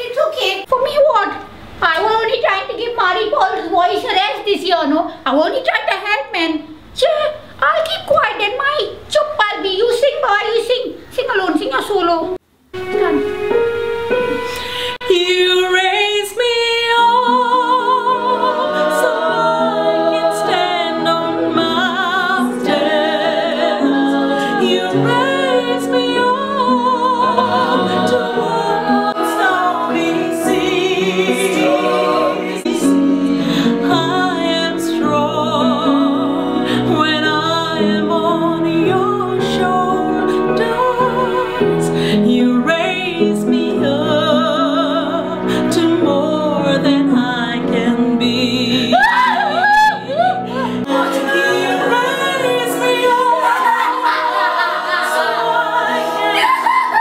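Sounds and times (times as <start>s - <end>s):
choir singing in harmony: 12.8s - 57.0s.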